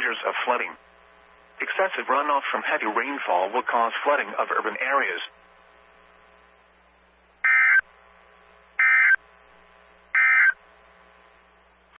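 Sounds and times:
loud digital buzzes: 7.4s - 11.4s.

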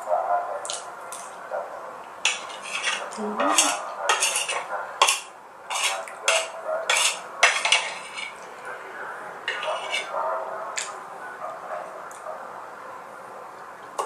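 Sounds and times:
metal spoon scraping ceramic plate: 2.2s - 8.4s, 9.5s - 10.2s.

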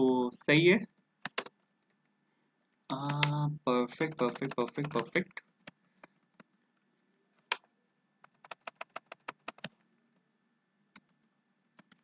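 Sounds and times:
computer keyboard keystrokes: 0.9s - 1.6s, 3.0s - 3.4s, 4.0s - 6.6s, 8.2s - 9.8s, 11.0s - 12.0s.

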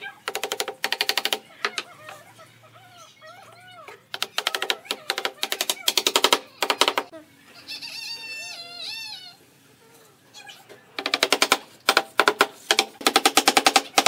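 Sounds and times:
faint animal calls: 0.0s - 11.0s
wooden mallet tapping boards: 0.3s - 1.9s, 4.2s - 7.1s, 11.0s - 14.0s.

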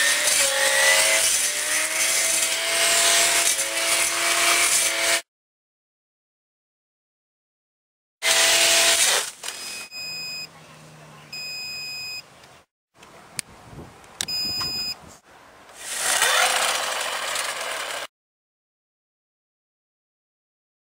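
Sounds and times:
brush cutter motor whining: 0.0s - 5.2s, 8.2s - 10.4s, 15.7s - 18.1s
short electronic beeps: 9.6s - 10.5s, 11.3s - 12.3s, 14.3s - 15.0s.

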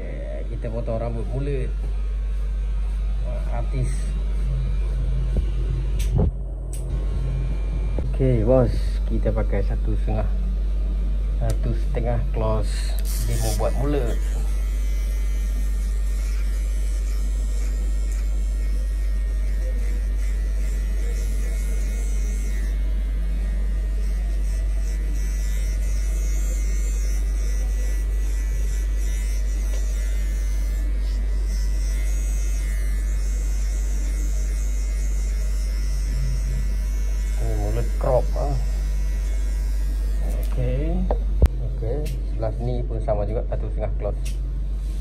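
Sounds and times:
hair clipper cutting hair: 0.0s - 10.4s, 11.3s - 44.4s
loud low hum: 0.0s - 45.0s.

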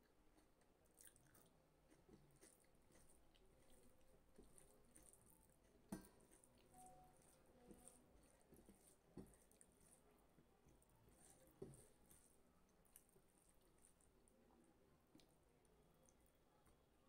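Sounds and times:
faint chewing: 0.0s - 17.0s
fingers squelching food on plate: 0.3s - 14.3s.

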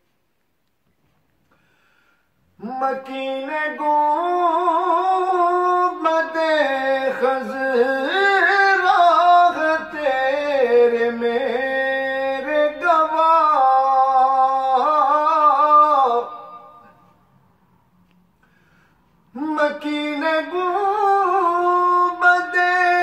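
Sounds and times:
man singing ornamented notes: 2.6s - 17.2s, 19.3s - 23.0s.

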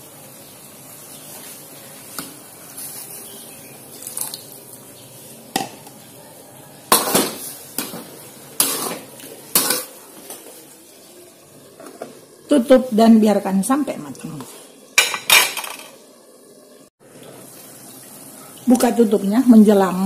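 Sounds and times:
low sizzle: 0.0s - 20.0s
metal spatula scraping a wok: 8.6s - 9.9s.

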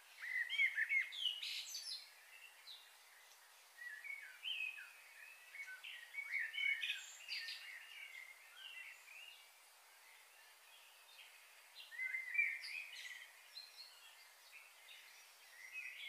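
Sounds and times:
faint steady hiss: 0.0s - 16.0s
small birds chirping: 0.0s - 16.0s.

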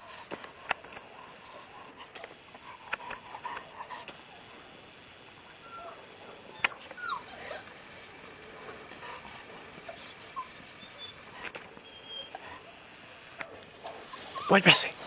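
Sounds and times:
puppies squeaking and whimpering: 5.2s - 8.1s, 9.2s - 12.7s, 14.0s - 15.0s.

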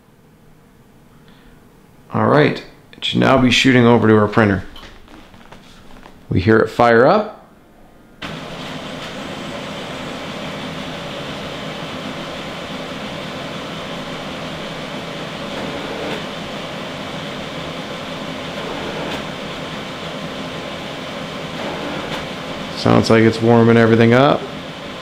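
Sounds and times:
printer fan and motor whir: 8.0s - 25.0s.

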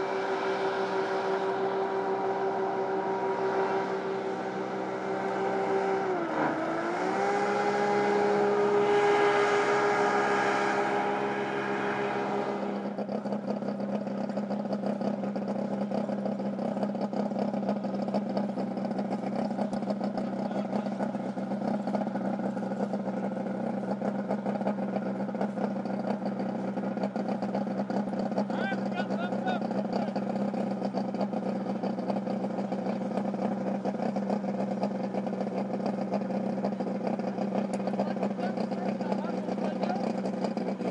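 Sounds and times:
hovercraft engine and fan droning: 0.0s - 40.9s.

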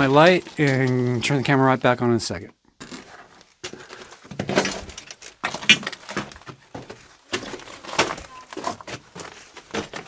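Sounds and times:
footsteps on loose rock: 5.4s - 10.0s.

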